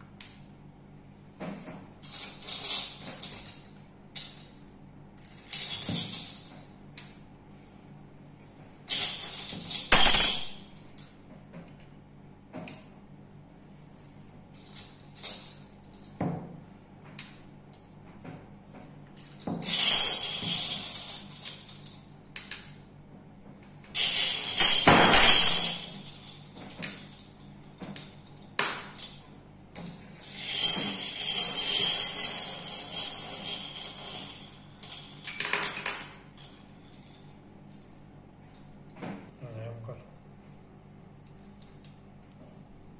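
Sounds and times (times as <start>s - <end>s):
glass marbles clinking: 8.9s - 10.8s, 24.0s - 29.3s, 30.2s - 37.3s.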